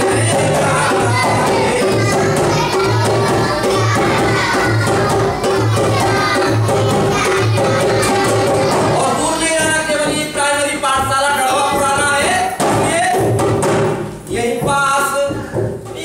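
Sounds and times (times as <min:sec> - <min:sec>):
man singing: 0:00.0 - 0:02.4, 0:08.9 - 0:13.4, 0:14.3 - 0:16.0
dholak drum beat: 0:00.0 - 0:16.0.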